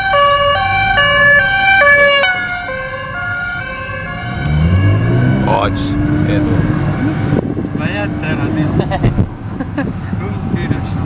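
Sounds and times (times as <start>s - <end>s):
two-tone siren: 0.0s - 5.9s
car engine running low: 4.0s - 11.0s.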